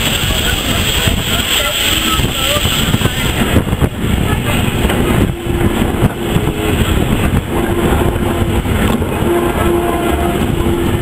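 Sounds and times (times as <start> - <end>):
railway wagon rolling on track: 0.0 - 11.0
steady pitched tone: 4.3 - 11.0.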